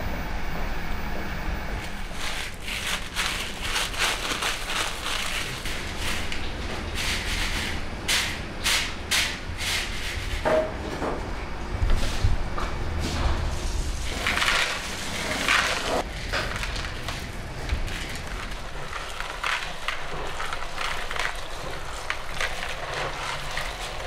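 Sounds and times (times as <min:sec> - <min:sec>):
low kitchen hum: 0:00.0 - 0:24.0
raisins rattling in plastic colander: 0:02.6 - 0:05.6.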